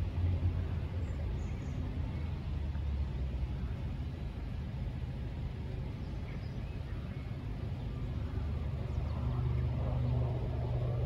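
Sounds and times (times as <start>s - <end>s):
low engine hum: 0.0s - 11.0s.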